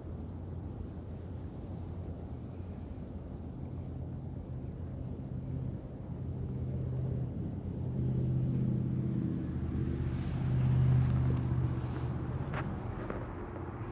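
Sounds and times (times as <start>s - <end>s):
engine humming: 6.3s - 13.9s.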